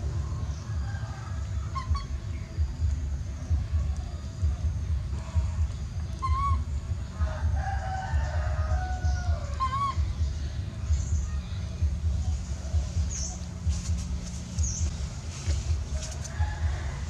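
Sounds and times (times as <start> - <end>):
low rumble: 0.0 - 17.0
wavering animal call: 1.4 - 2.5, 5.2 - 7.6, 8.7 - 10.4
animal cries: 1.7 - 2.3, 5.3 - 6.8, 8.7 - 10.3.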